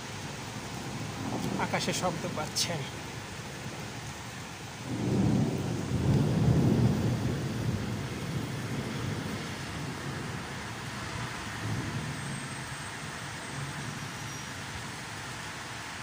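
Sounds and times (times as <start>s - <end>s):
rain hissing: 0.0s - 16.0s
thunder rolling: 4.8s - 10.5s, 11.6s - 12.5s.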